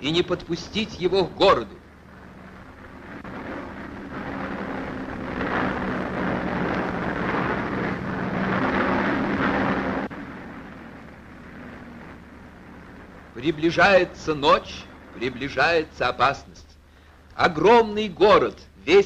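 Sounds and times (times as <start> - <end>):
piston aircraft engines droning: 0.0 - 19.0.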